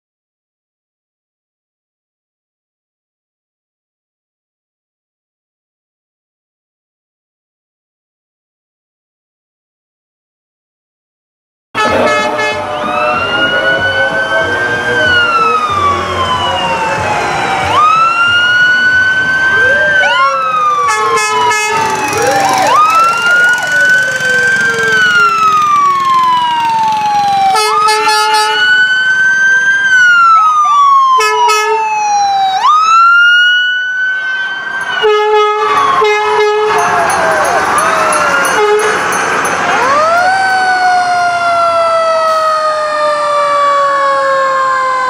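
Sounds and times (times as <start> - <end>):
deep truck horn blasts: 11.8 - 14.9, 20.8 - 22.9, 27.5 - 28.7, 31.2 - 31.8, 35.0 - 36.9, 38.6 - 39.1
fire truck siren wailing: 11.8 - 45.0.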